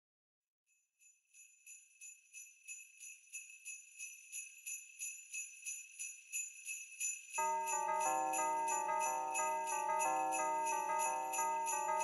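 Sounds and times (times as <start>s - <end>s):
sleigh bells shaken: 1.0s - 12.0s.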